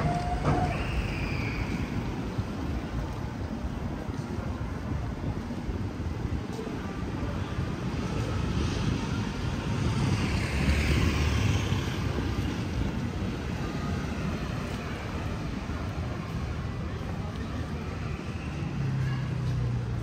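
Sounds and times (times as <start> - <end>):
outdoor background noise: 0.0 - 20.0
engine passing by: 7.6 - 20.0.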